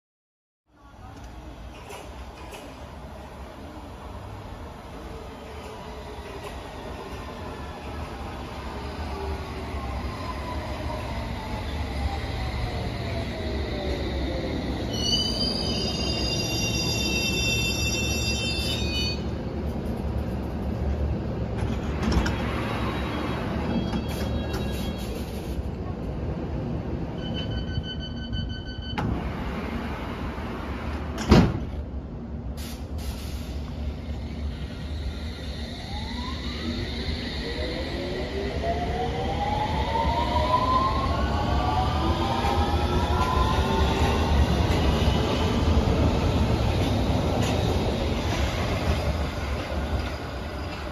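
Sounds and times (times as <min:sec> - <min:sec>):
train doors shutting: 0:01.0 - 0:03.2, 0:21.5 - 0:25.9, 0:27.0 - 0:31.9, 0:32.5 - 0:38.3, 0:39.8 - 0:50.9
high squeal: 0:11.7 - 0:19.3.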